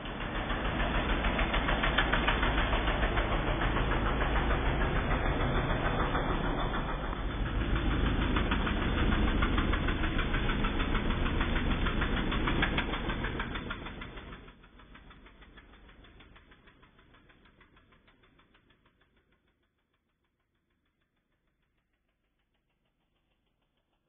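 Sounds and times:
riding lawn mower engine: 0.0s - 19.0s.

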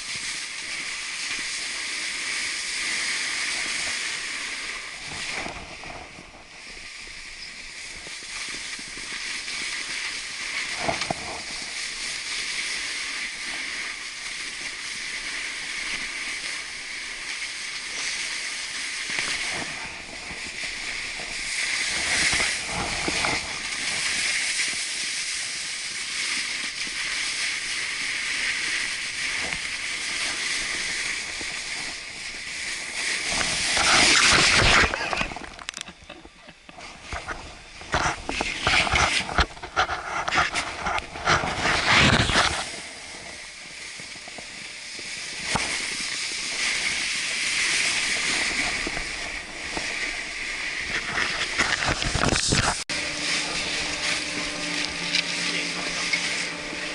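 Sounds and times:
snowboard scraping on snow: 0.0s - 35.4s, 36.0s - 56.9s.

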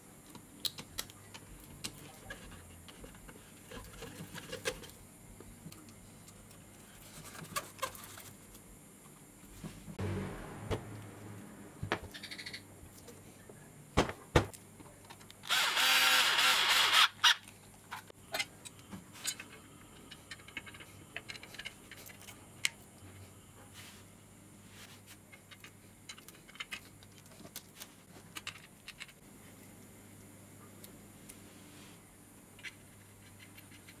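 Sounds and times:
handheld power tool running: 15.4s - 17.4s
metal parts clicking and tapping: 18.0s - 22.8s.

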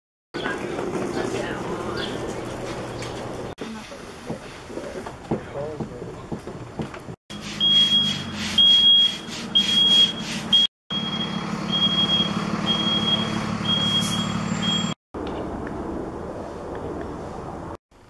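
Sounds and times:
reversing alarm beeping: 7.6s - 15.0s
vehicle engine running: 10.9s - 14.9s.

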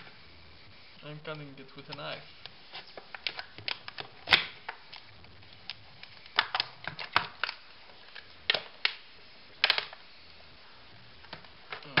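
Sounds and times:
packaging cracking and snapping: 2.8s - 9.0s, 9.6s - 10.0s.

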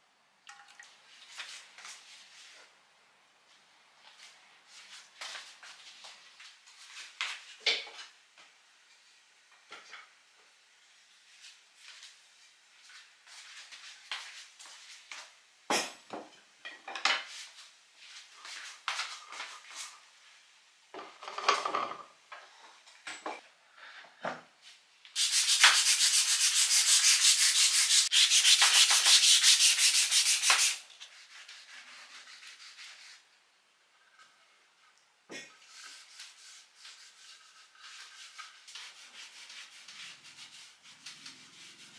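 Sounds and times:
sanding wood by hand: 25.2s - 33.2s.

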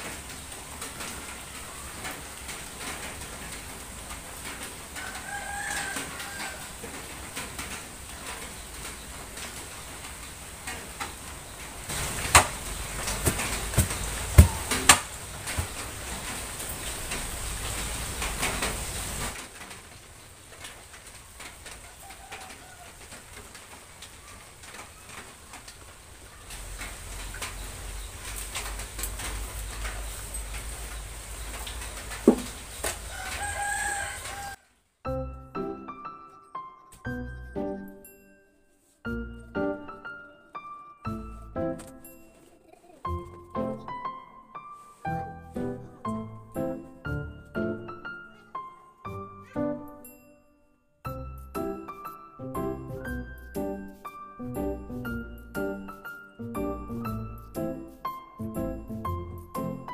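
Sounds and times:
faint steady hiss: 0.0s - 49.0s
floor mat knocking and bumping: 11.9s - 16.4s, 32.1s - 33.0s.

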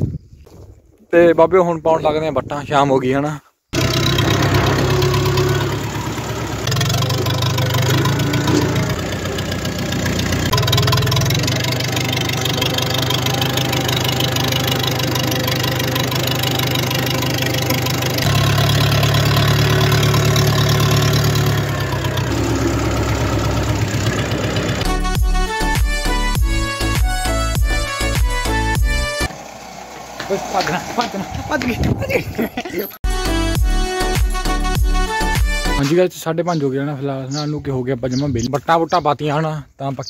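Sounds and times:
tractor engine running hard: 3.8s - 32.0s.

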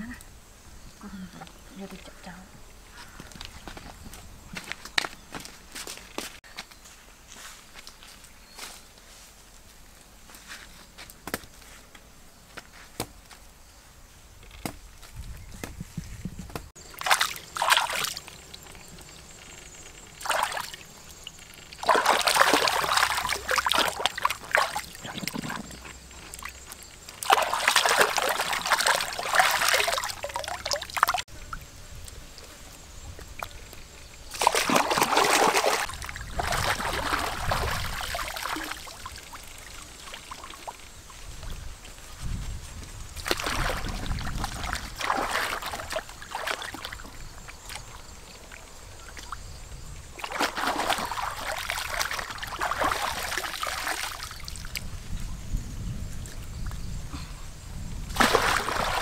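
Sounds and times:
water sloshing and splashing: 16.8s - 31.2s, 34.3s - 41.6s, 43.1s - 49.5s, 50.1s - 54.9s, 58.1s - 59.0s.

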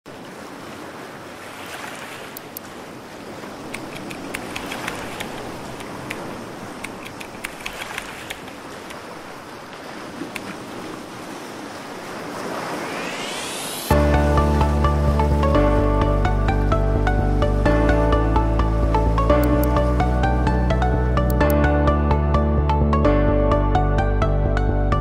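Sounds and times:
computer keyboard keys clicking: 3.8s - 6.2s, 6.8s - 8.6s
steady rushing noise: 11.1s - 20.5s.

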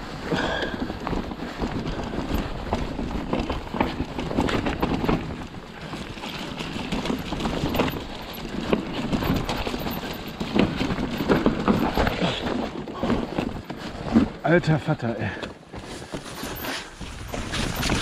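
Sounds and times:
bike rattling and knocking: 0.0s - 18.0s
wind noise on microphone: 16.5s - 18.0s.

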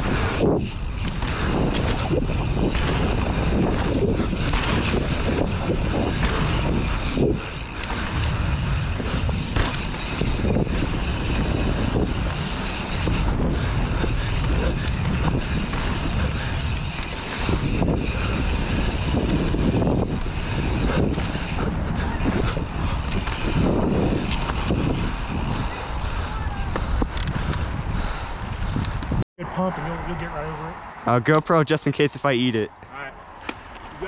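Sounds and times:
wind buffeting microphone: 0.0s - 31.0s
bike knocking over bumps: 8.8s - 10.9s.

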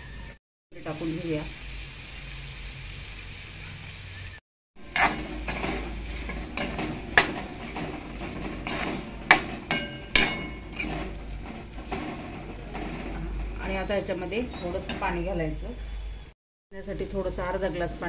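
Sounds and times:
spatula clanking on pan: 4.8s - 15.2s
metal spatula scraping a pan: 4.8s - 16.2s.

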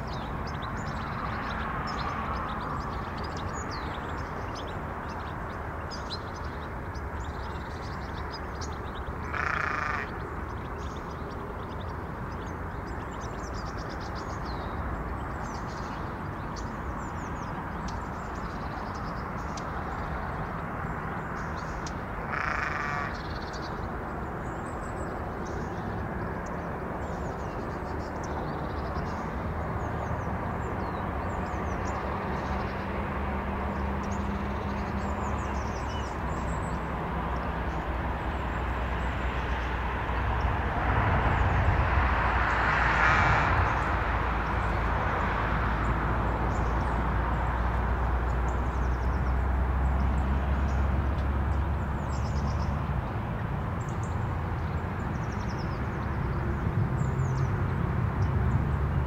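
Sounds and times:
small birds chirping: 0.0s - 32.9s
short loud bird call: 9.3s - 10.1s, 22.3s - 23.2s.

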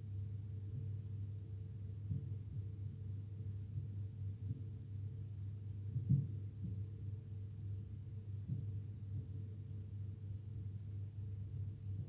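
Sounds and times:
steady low hum: 0.0s - 12.0s
soft low thumps: 5.9s - 7.1s, 8.4s - 9.5s.

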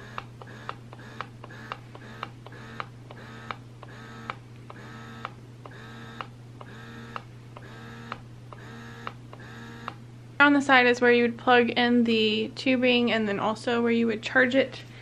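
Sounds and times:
sharp pump clicks: 0.0s - 10.0s
breast pump motor humming: 0.0s - 10.1s.

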